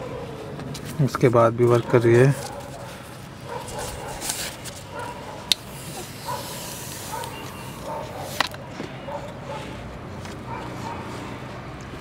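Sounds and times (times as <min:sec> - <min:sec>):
steady hiss: 0:05.5 - 0:07.9.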